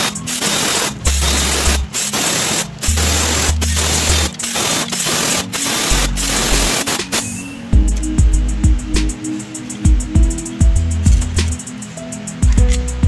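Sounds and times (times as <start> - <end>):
pneumatic air ratchet bursts: 0.0 - 8.1.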